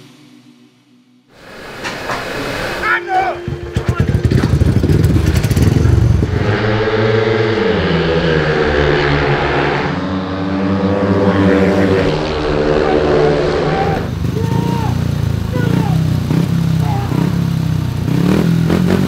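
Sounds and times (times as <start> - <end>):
motorcycle engine revving: 1.4 - 19.0
engine popping: 3.2 - 6.6, 10.9 - 19.0.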